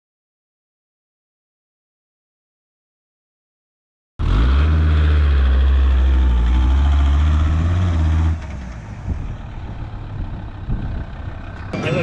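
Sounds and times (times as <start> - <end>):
van engine running: 4.2 - 12.0.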